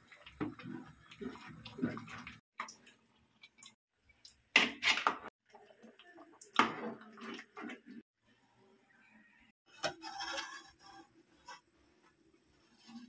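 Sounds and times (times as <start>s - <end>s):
metal spoon stirring in pot: 9.7s - 11.6s.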